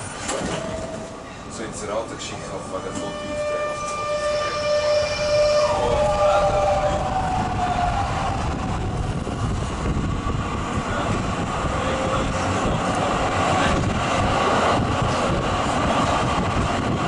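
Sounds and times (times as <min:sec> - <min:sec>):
wheels rumbling on rails: 0:00.0 - 0:17.0
wind noise: 0:03.9 - 0:17.0.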